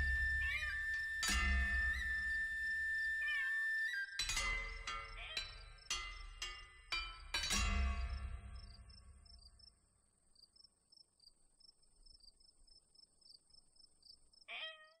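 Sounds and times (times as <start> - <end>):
chime-like music: 0.0 - 9.0
crickets chirping: 0.0 - 14.5.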